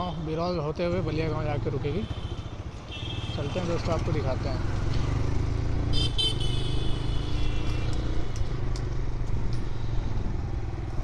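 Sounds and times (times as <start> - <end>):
motorcycle engine and road rumble: 0.0 - 11.0
high-pitched vehicle horn honking: 6.0 - 7.8.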